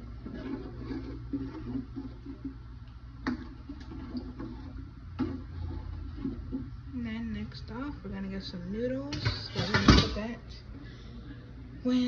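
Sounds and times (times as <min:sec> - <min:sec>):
soup sloshing while stirred: 0:00.0 - 0:07.6.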